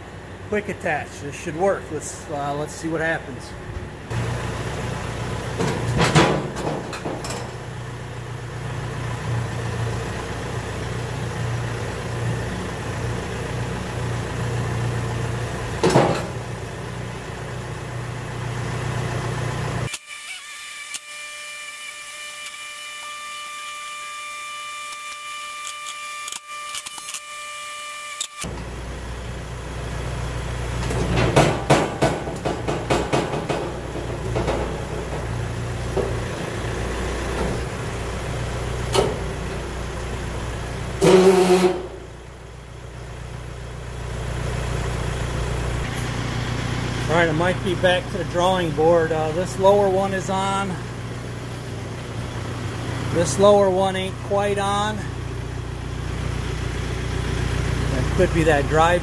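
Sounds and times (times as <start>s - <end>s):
tractor diesel engine running: 0.0s - 19.9s, 28.4s - 59.0s
metal clanks: 5.5s - 7.7s, 30.8s - 36.6s
steady high whine: 45.7s - 59.0s.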